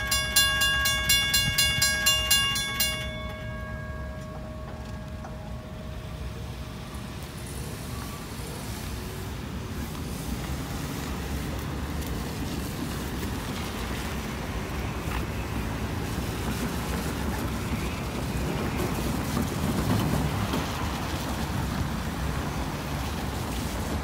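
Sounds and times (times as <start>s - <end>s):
traffic over railroad crossing: 0.0s - 24.0s
tyres hissing on wet pavement: 5.8s - 24.0s.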